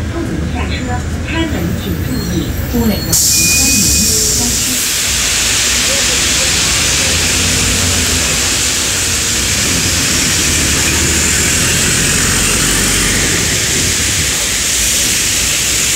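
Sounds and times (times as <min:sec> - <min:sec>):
bus engine humming: 0:00.0 - 0:15.9
rain: 0:03.2 - 0:15.9
tyre spray hiss: 0:03.2 - 0:15.9.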